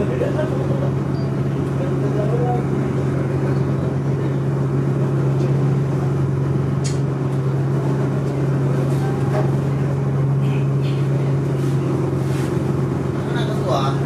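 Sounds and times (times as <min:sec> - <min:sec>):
ferry engine droning: 0:00.0 - 0:14.0.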